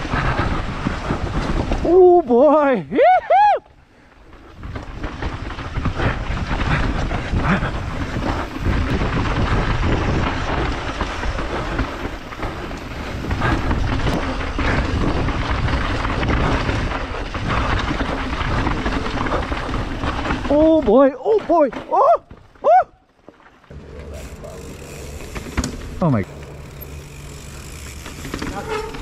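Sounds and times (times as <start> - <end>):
bike rattling over bumps: 0.0 - 2.9, 3.8 - 29.0
bike tyres rolling on dirt: 0.0 - 29.0
wind rumble on microphone: 4.4 - 20.8.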